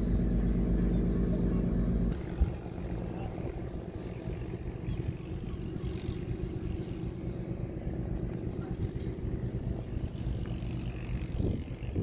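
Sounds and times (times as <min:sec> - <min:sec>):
faint steady hum: 0:00.0 - 0:12.0
wind buffeting microphone: 0:00.0 - 0:12.0.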